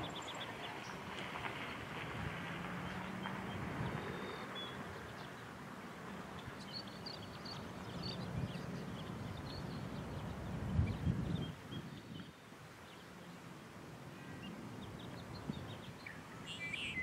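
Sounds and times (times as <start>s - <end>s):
high bird chirps: 15.6s - 17.0s.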